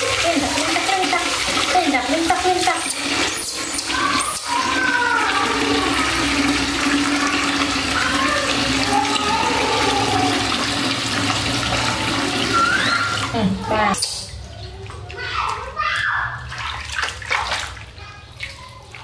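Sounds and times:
tap water pouring into basin: 0.0s - 15.8s
monkey crying: 11.9s - 14.0s.

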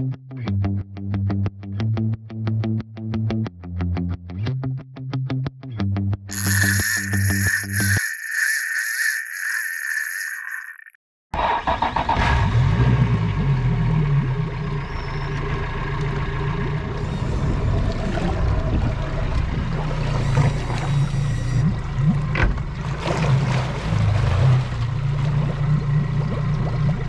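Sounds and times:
outboard motor running: 15.4s - 27.0s
propeller churning water: 16.9s - 21.1s, 21.7s - 27.0s.

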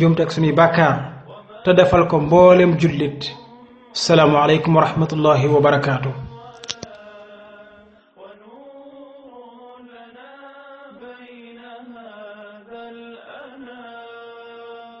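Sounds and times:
person chanting melodic recitation: 0.0s - 7.6s.

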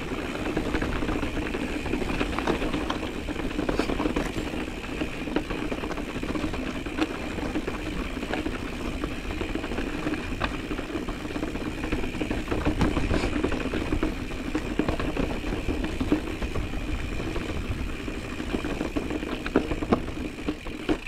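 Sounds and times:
bike tyres rolling on dirt: 0.0s - 21.0s
clicks and rattles on stones: 0.0s - 21.0s.

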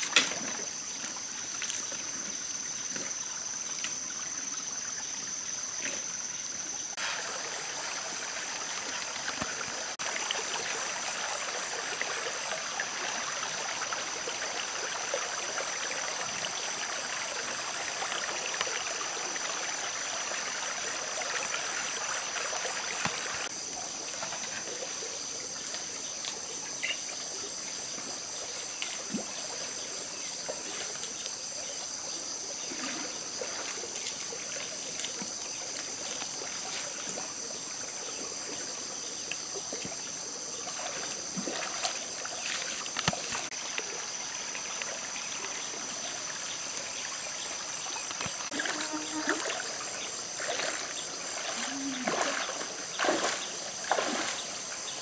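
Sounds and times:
high insect trill: 0.0s - 55.0s
stream trickling over rocks: 0.0s - 55.0s.

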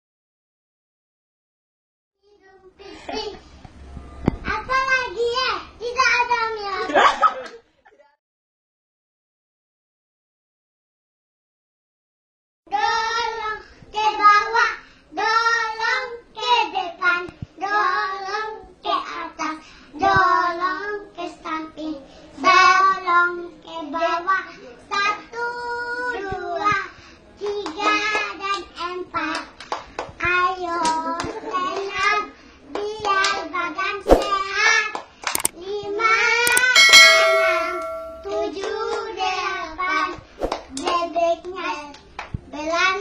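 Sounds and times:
hand claps: 29.3s - 30.1s, 40.5s - 42.4s.

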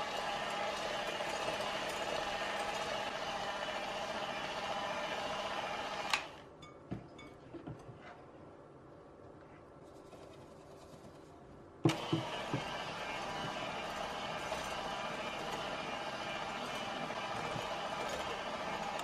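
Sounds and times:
electric hand mixer humming: 0.0s - 6.5s, 11.9s - 19.0s.

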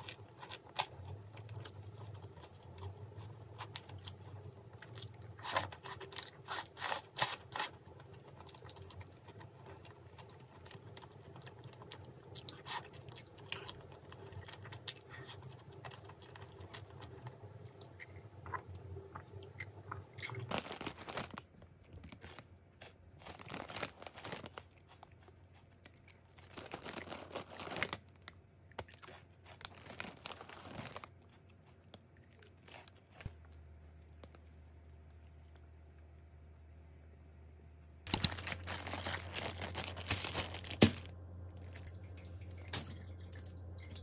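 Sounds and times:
person chewing: 0.0s - 36.2s, 38.1s - 44.0s
foil snack bag crinkling: 20.2s - 33.6s, 38.1s - 43.4s.

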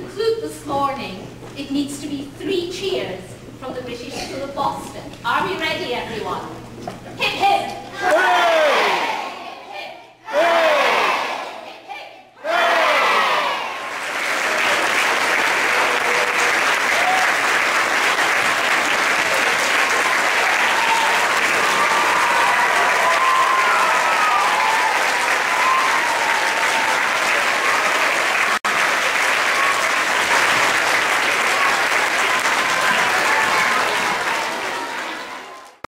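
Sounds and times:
crowd clapping: 12.9s - 35.9s.

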